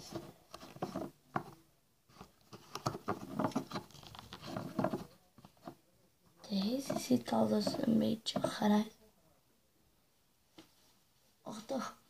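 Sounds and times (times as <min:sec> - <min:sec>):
plastic bottles tapping and clicking: 0:00.0 - 0:01.6, 0:02.5 - 0:05.8, 0:06.5 - 0:08.7.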